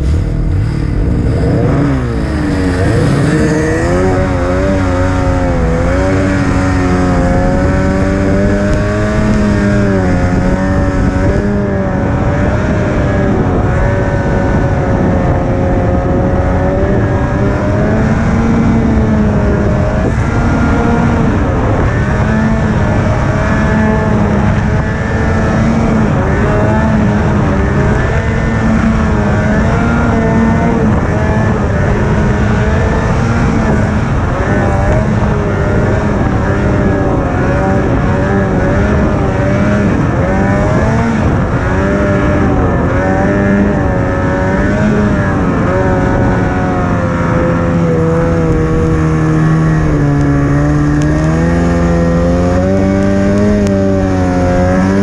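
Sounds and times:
snowmobile engine revving: 0.0s - 55.0s.

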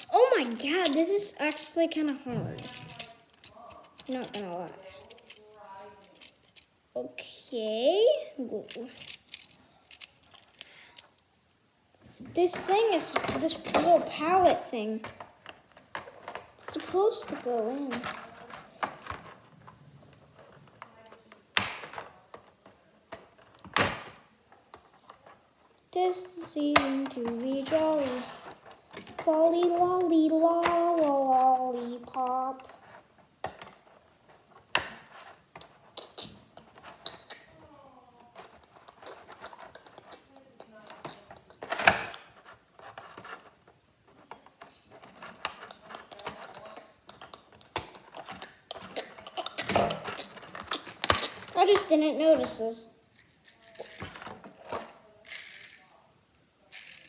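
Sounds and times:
plastic toy parts clicking: 0.0s - 6.7s, 8.5s - 11.2s, 34.6s - 37.6s, 44.2s - 51.9s, 53.2s - 56.0s, 56.7s - 57.0s.

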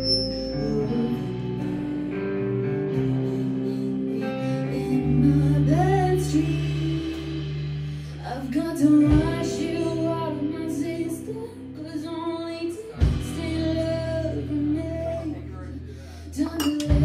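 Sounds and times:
woman singing: 0.0s - 2.3s, 2.9s - 17.0s
electric bass: 0.0s - 17.0s
electric guitars: 0.0s - 17.0s
drum kit: 5.0s - 11.1s, 12.9s - 14.3s, 16.4s - 17.0s.

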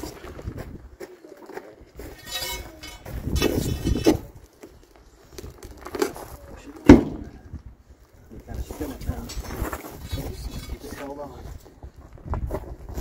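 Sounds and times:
tractor tire scuffing and knocking: 0.0s - 7.4s
sharp loud thump: 6.9s - 7.3s.

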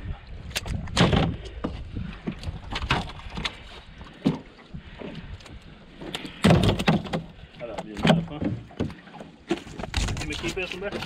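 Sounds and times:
fish flopping on aluminum boat floor: 6.0s - 11.0s.

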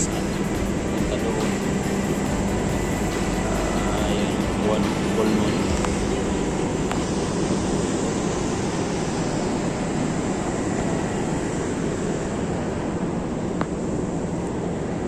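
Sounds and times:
low rumbling noise: 0.0s - 15.0s.

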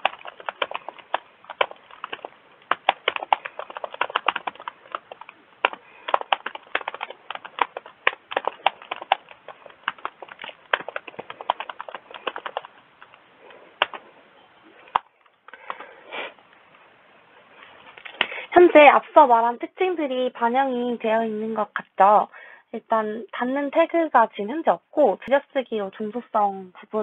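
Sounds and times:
computer keyboard typing: 0.0s - 14.0s.

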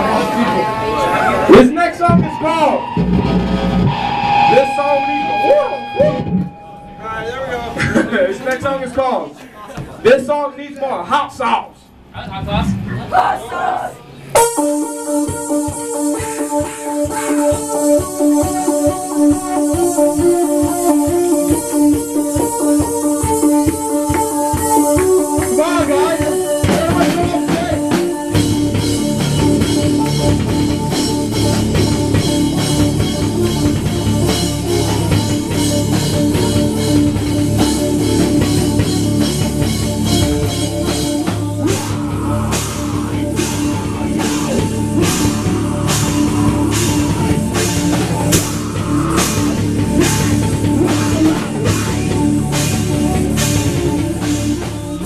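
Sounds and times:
drum kit: 0.0s - 7.0s, 14.4s - 55.0s
electric bass: 0.0s - 7.8s, 24.1s - 55.0s
distorted guitars: 0.0s - 8.4s, 14.4s - 55.0s
cymbals struck on a beat: 14.4s - 55.0s.

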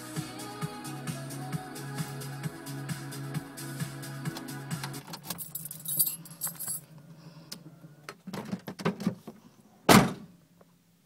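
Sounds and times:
car keys jangling: 5.0s - 6.9s
loud thump: 9.9s - 10.3s.

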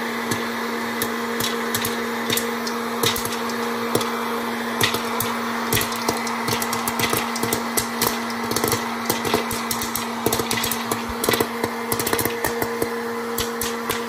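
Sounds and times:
popcorn popper fan hum: 0.0s - 14.0s
popcorn kernels popping: 0.2s - 14.0s
popcorn tumbling into a bowl: 4.8s - 14.0s.

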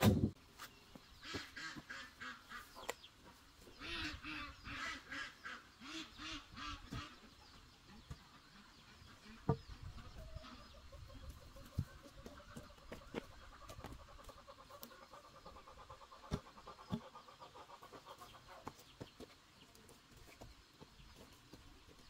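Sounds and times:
ducks quacking: 1.2s - 3.0s, 3.8s - 18.7s.

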